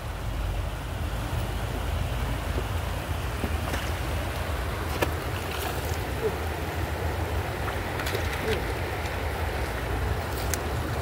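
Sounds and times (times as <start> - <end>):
river water rushing over stones: 0.0 - 11.0.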